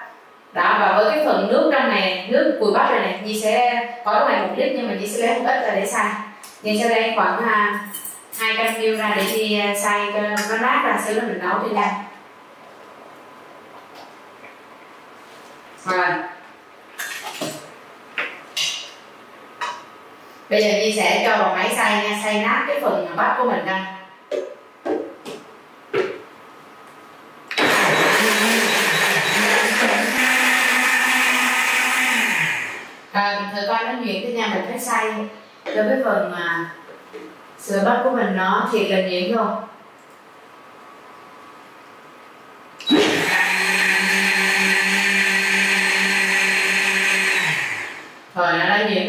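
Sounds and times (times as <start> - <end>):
blender running: 27.5 - 33.0, 42.8 - 48.3.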